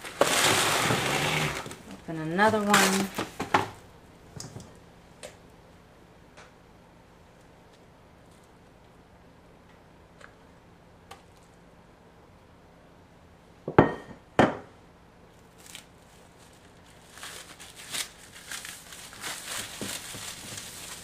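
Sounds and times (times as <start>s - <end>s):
plastic wrap crinkling: 0.0s - 3.6s, 15.4s - 21.0s.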